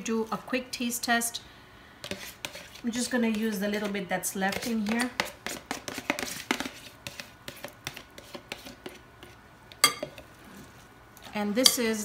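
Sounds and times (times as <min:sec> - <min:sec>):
spoon scraping container: 0:02.0 - 0:03.0
spoon knocking bowl: 0:09.8 - 0:10.2.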